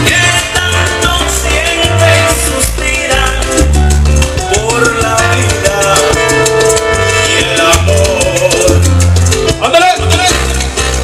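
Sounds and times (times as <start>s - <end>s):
salsa music over sound system: 0.0s - 11.0s.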